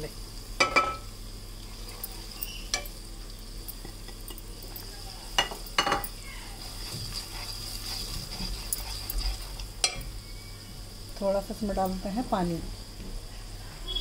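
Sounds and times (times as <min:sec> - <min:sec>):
spices sizzling in hot oil: 0:00.0 - 0:13.0
spatula stirring: 0:01.6 - 0:03.0, 0:03.7 - 0:10.6.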